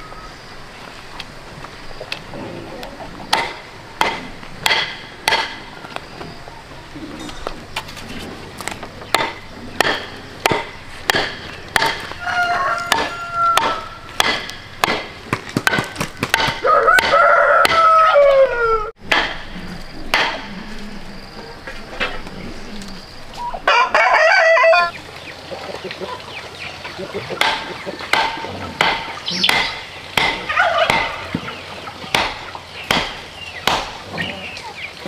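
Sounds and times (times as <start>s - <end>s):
sharp wooden knocks: 3.3s - 5.7s, 9.0s - 12.2s, 12.9s - 18.0s, 19.0s - 20.5s, 27.4s - 34.0s
turkey gobbling: 11.8s - 14.2s, 23.3s - 32.8s
rooster crowing: 12.1s - 14.2s, 16.6s - 19.0s, 23.4s - 25.0s, 30.4s - 31.2s.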